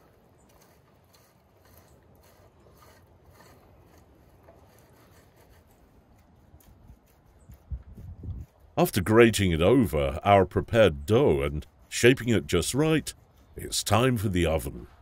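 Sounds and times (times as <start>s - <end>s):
cheese grating on metal grater: 0.5s - 8.8s.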